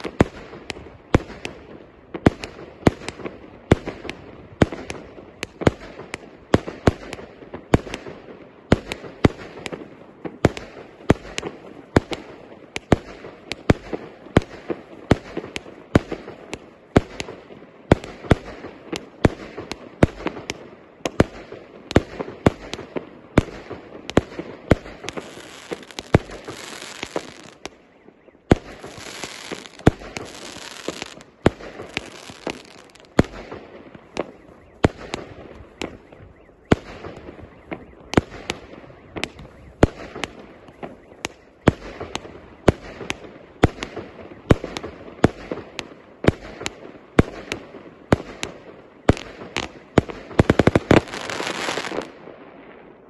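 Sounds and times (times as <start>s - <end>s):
crackling fireworks stars: 0.0s - 53.0s
fireworks shots: 0.0s - 53.0s.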